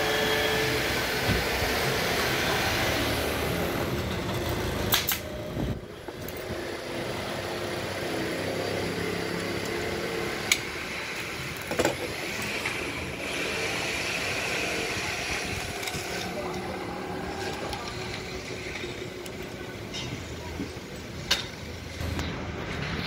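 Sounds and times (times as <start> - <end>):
steady mechanical hum: 0.0 - 23.0
pneumatic staple gun snaps: 4.9 - 5.3.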